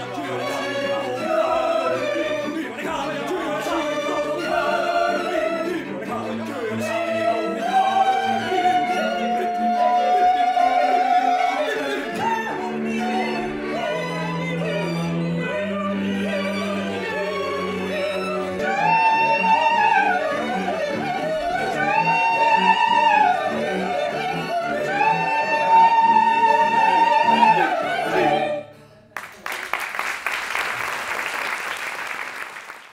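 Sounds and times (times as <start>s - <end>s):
group of voices singing opera: 0.0s - 28.8s
audience applause: 29.2s - 32.9s.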